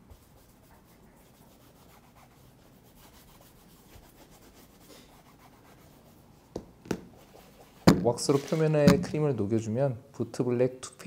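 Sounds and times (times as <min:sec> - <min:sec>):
cloth rubbing on leather boot: 0:07.1 - 0:09.2.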